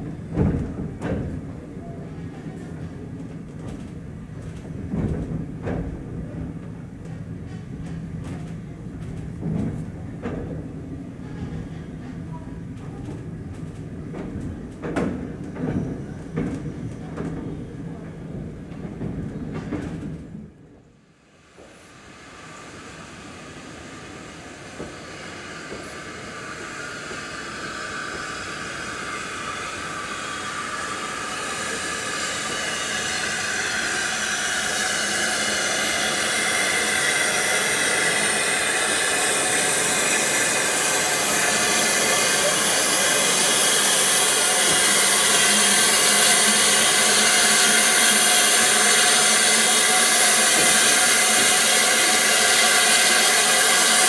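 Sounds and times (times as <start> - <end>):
steam locomotive hissing: 21.2 - 54.0.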